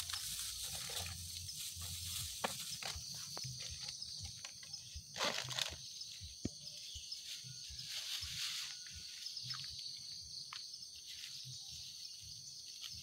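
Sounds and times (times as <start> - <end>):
plastic bags rustling: 0.0 - 3.9
insects chorus: 0.0 - 13.0.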